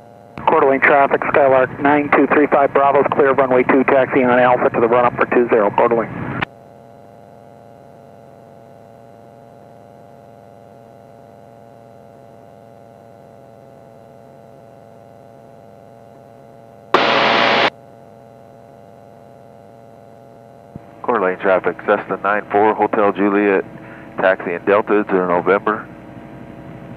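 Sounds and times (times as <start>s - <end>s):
radio hum with faint tones: 0.2s - 17.7s, 18.5s - 26.9s
radio static burst: 17.0s - 17.7s.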